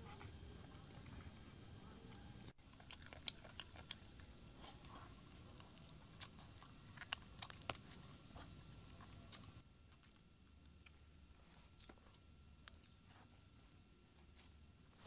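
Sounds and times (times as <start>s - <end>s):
person chewing meat: 2.6s - 10.2s.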